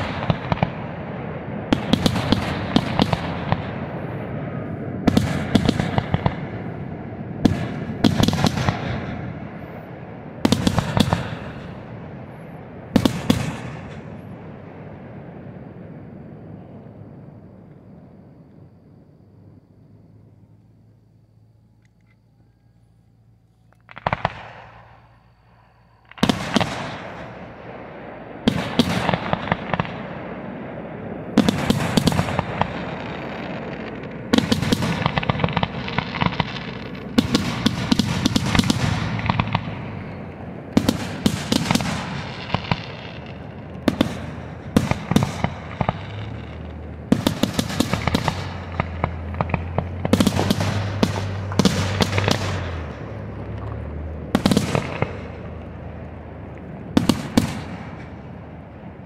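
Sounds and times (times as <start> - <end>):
firework shells bursting: 23.7 - 27.5, 31.3 - 58.3.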